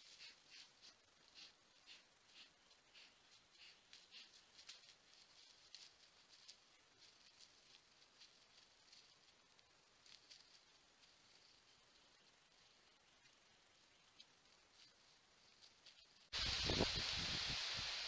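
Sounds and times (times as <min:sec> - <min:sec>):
deer rustling in dry grass: 0:00.0 - 0:17.0.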